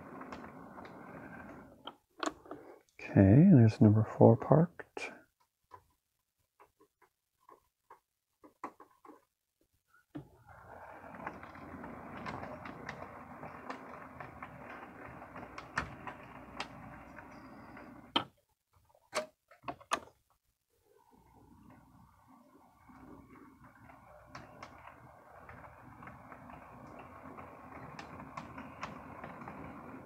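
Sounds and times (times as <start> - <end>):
model train motor and wheel whir: 10.4 - 18.2, 21.3 - 30.0.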